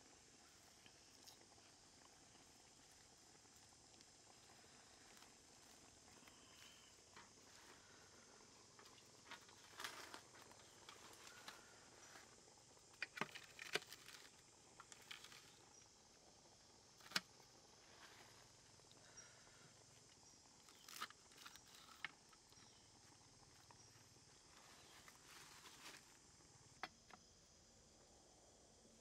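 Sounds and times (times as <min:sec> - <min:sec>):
leaves rustling: 0:00.0 - 0:15.7, 0:24.0 - 0:26.4.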